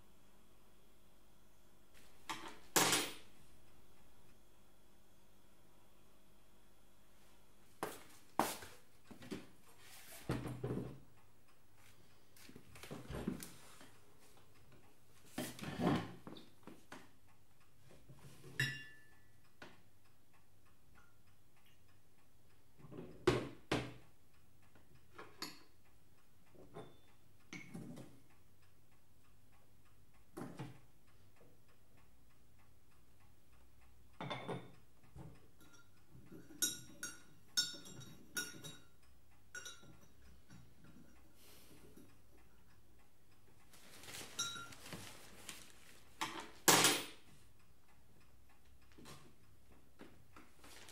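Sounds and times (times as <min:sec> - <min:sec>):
china clicking and clinking: 0:39.6 - 0:40.6.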